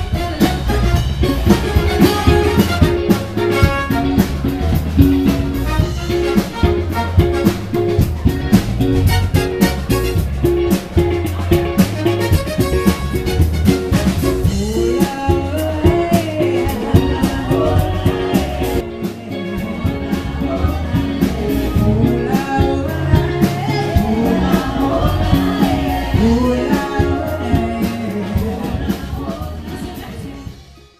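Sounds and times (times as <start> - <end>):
drum kit beat: 0.0 - 30.9
electric guitar: 0.0 - 30.9
keyboard: 0.0 - 30.9
people singing: 14.4 - 30.9.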